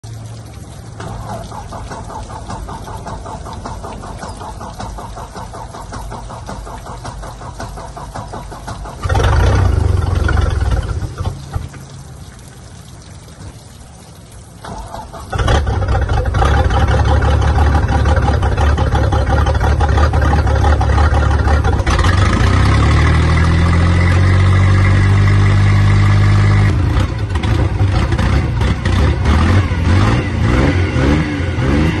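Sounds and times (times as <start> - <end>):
boat engine cranking: 1.0 - 11.7, 14.6 - 24.7
boat engine running and revving: 9.0 - 11.4, 15.4 - 32.0.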